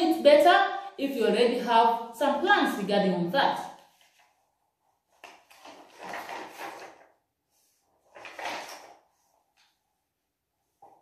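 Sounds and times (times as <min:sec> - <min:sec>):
paper rustling: 0:03.8 - 0:09.8.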